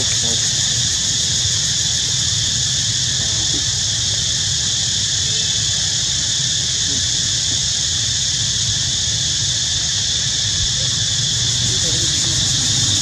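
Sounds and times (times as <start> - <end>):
insect chorus drone: 0.0 - 13.0.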